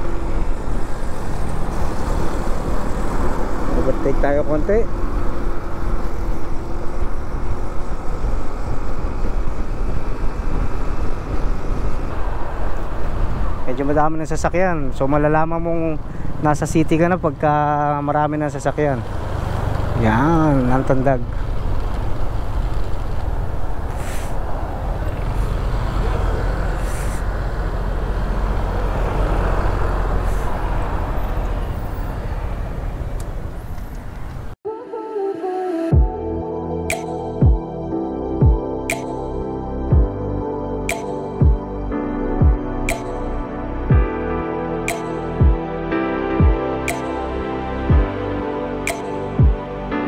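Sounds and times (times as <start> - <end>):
motorcycle engine hum: 0.0 - 13.6, 15.8 - 34.6
wind and road noise: 0.0 - 34.6, 36.0 - 50.0
wind rush on microphone: 4.9 - 13.8
motorcycle engine: 24.7 - 30.2.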